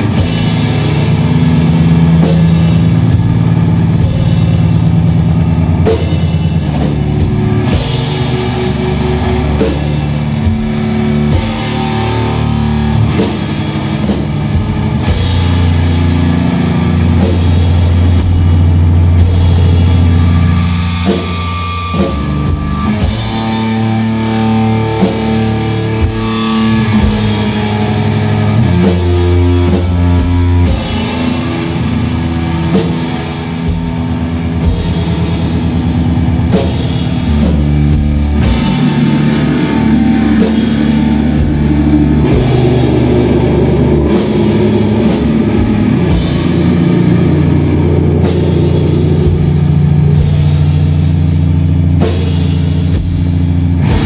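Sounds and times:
bass guitar: 0.0s - 54.0s
distorted electric guitar: 0.0s - 54.0s
drum hits: 28.6s - 54.0s.

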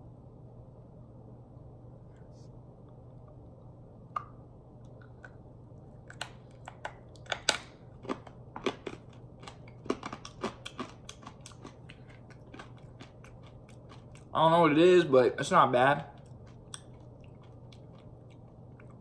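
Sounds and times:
faint steady hum: 0.0s - 19.0s
candy crunching: 6.1s - 14.8s, 15.7s - 19.0s.

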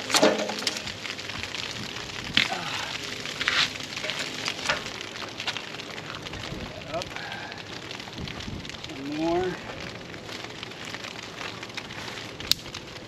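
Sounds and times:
metal scoop scraping charcoal: 0.0s - 1.0s, 3.2s - 5.6s.

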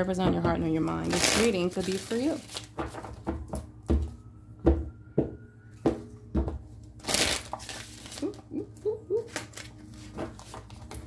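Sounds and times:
cards tapping and knocking: 2.5s - 6.6s.

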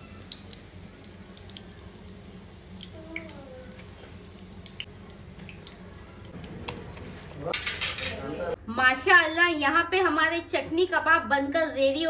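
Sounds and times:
hot oil crackling in frying pan: 0.0s - 6.4s
low steady hum: 0.0s - 9.4s.

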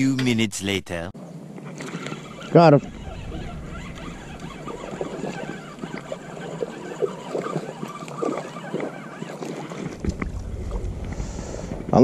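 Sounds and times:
light water splashing: 3.7s - 12.0s.

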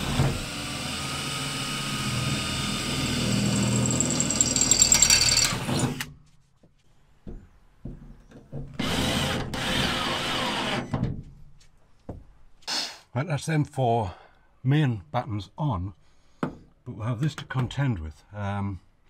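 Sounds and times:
cordless drill drilling into wood: 0.0s - 6.1s, 8.8s - 10.9s.

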